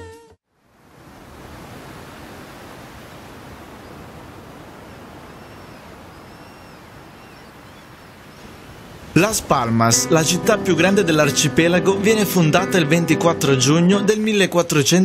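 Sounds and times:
surf breaking on rocks: 0:00.8 - 0:06.2, 0:06.8 - 0:10.8.

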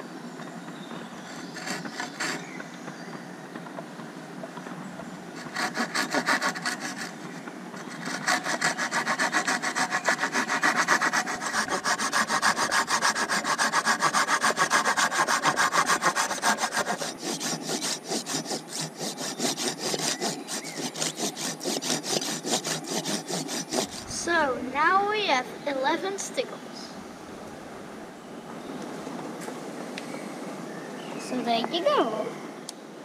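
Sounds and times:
saw cutting wooden pole: 0:01.3 - 0:02.5, 0:05.4 - 0:24.5.

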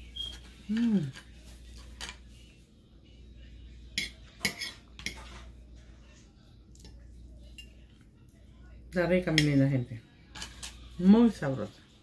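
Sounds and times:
fork clinking and scraping on dish: 0:00.2 - 0:02.3, 0:03.9 - 0:05.6, 0:10.3 - 0:10.9.

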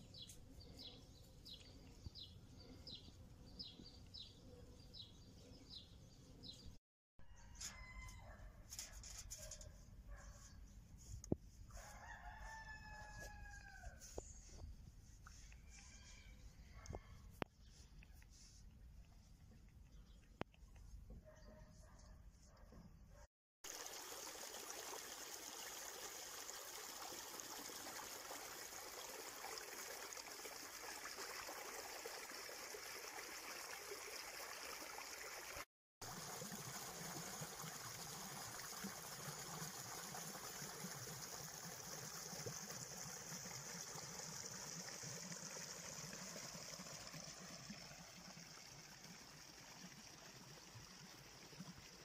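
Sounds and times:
stream running over rocks: 0:23.6 - 0:52.0.

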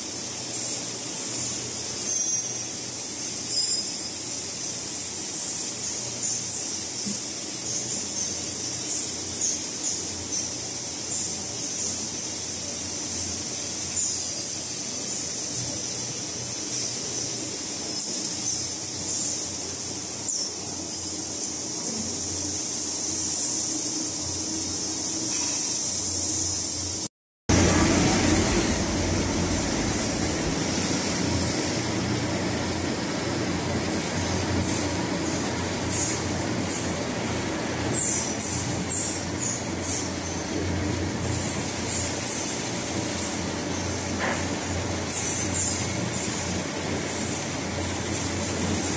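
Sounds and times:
low hum: 0:27.5 - 0:36.5
cnc lathes running: 0:27.5 - 0:48.9.

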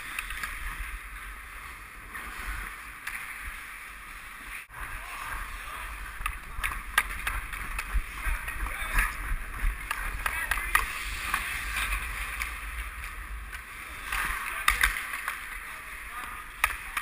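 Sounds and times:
hockey sticks and puck clacking: 0:00.0 - 0:01.0, 0:02.1 - 0:04.5, 0:05.1 - 0:17.0
ice skate blades scraping: 0:00.0 - 0:17.0
wind rumble on microphone: 0:04.7 - 0:13.6.

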